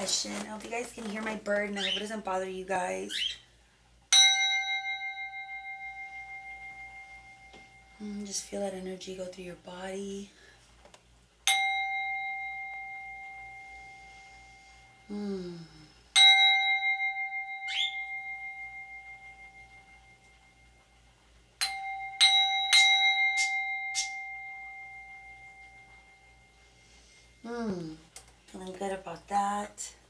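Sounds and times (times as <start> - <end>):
singing bowl ringing: 4.1 - 8.4, 11.4 - 15.1, 16.1 - 27.4.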